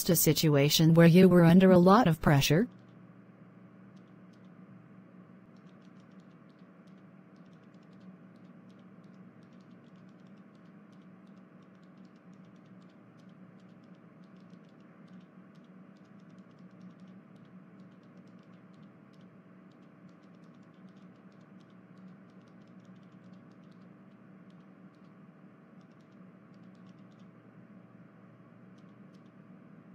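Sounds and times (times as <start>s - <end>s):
low electrical hum: 0.0s - 29.9s
light irregular clicking: 5.5s - 25.2s, 25.8s - 27.4s, 28.7s - 29.4s.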